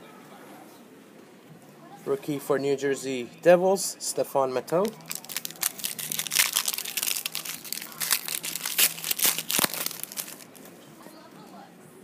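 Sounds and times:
foil wrappers crinkling: 4.7 - 10.7.

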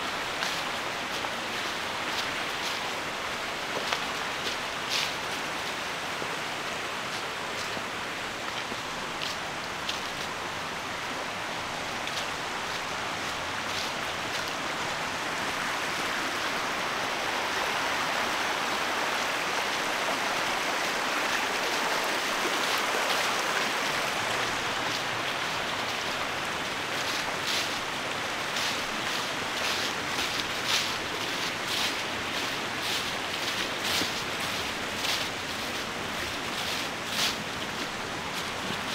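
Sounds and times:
stream water flowing: 0.0 - 38.9
footsteps on leaves: 0.1 - 5.9, 6.8 - 10.6, 11.8 - 15.0, 21.9 - 38.9.

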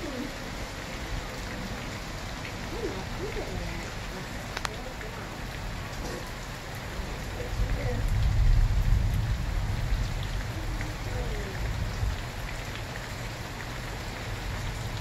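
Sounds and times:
steady rain: 0.0 - 15.0
water dripping: 0.0 - 15.0
low rumble of thunder: 6.9 - 12.8.

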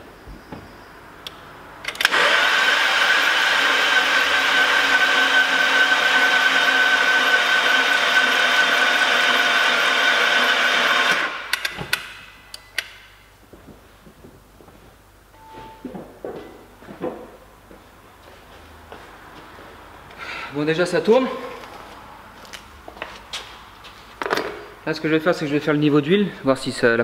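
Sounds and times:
starter motor cranking engine: 1.9 - 11.7.

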